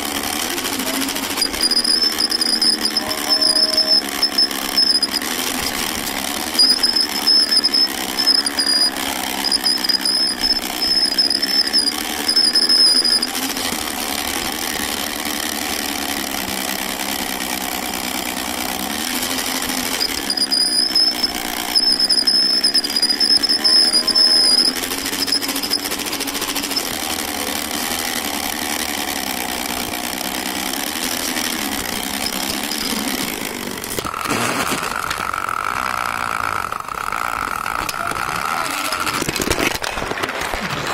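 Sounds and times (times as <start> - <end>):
toy train motor whirring: 0.0 - 40.9.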